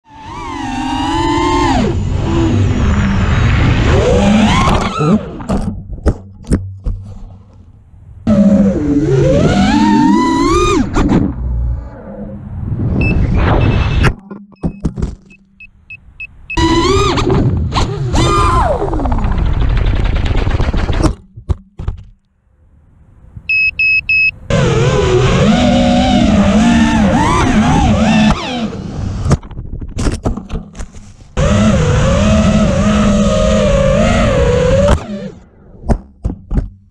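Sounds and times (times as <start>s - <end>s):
drone motors whining: 0.0s - 5.8s, 8.3s - 14.2s, 16.5s - 19.8s, 24.2s - 29.4s, 31.4s - 35.7s
short high beeps: 13.0s - 16.6s, 23.5s - 24.4s.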